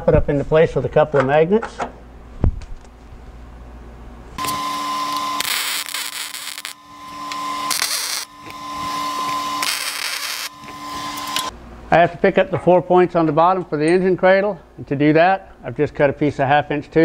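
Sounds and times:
welder arc crackling: 4.4 - 11.5
welder hum: 4.4 - 11.6.

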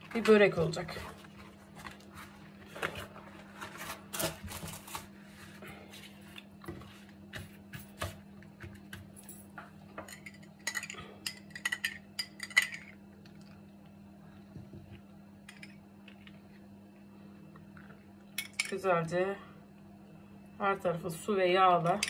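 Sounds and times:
pastry sheets rustling and crinkling: 0.1 - 7.2.

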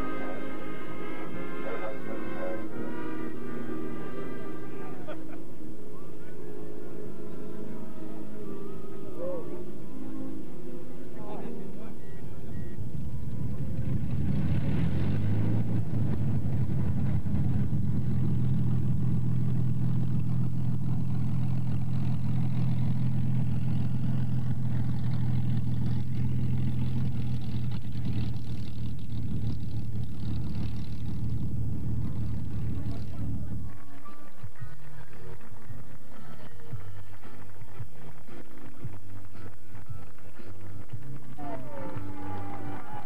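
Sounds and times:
piston aero engine at high power: 12.0 - 43.0.

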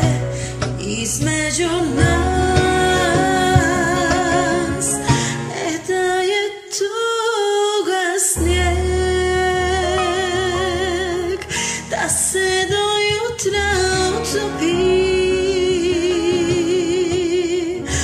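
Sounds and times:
karaoke backing track: 0.0 - 18.0
woman singing a slow ballad: 0.0 - 18.0.

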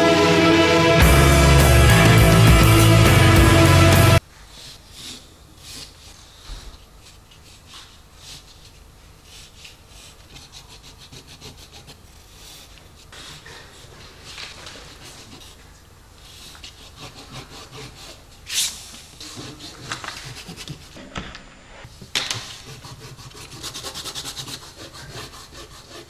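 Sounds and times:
pencil scratching on paper: 7.0 - 18.5, 19.1 - 21.0, 22.3 - 26.0
sharp pencil scrapes: 16.2 - 21.0.

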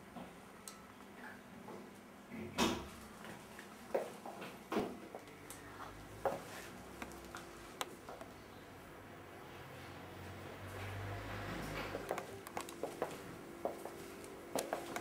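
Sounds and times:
footsteps and handling knocks: 11.9 - 15.0.

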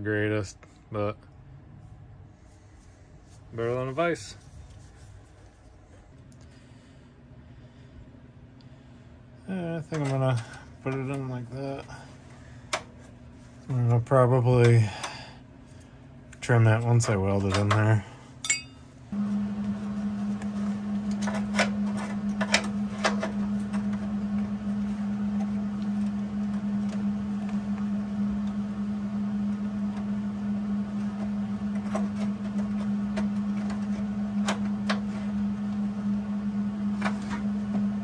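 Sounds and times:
welder humming: 9.4 - 38.0.

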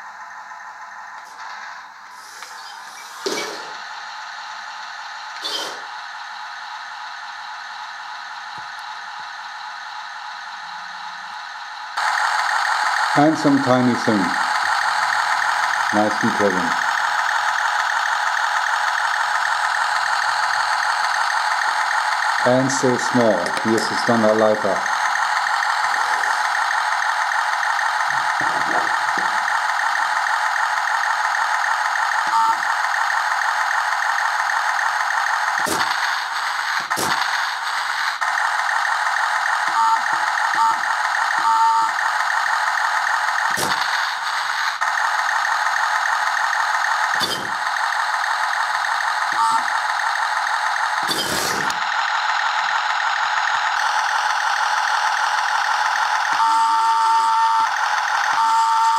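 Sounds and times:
toy tank engine idle from small speaker: 3.7 - 58.9
small drive motors whirring: 5.4 - 5.9, 51.0 - 51.8.

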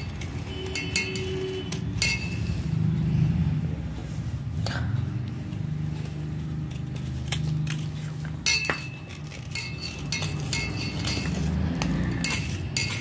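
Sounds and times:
knife scraping clay: 0.0 - 2.7, 6.4 - 13.0.

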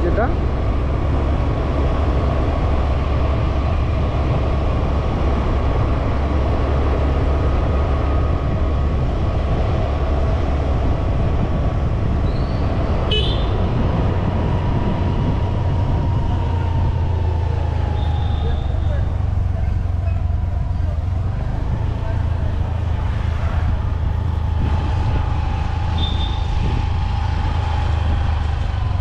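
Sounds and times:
vehicle road rumble with whine: 0.0 - 29.0
horn toot: 13.1 - 13.6.

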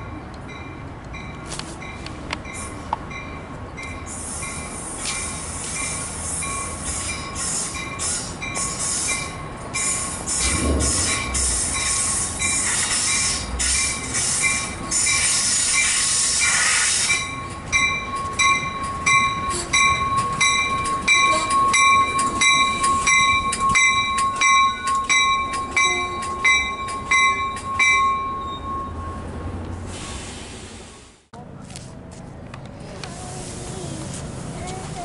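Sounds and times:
train rolling noise: 0.0 - 35.0
wheels clicking over rail joints: 0.3 - 28.5
brake and wheel squeal: 3.9 - 17.5.

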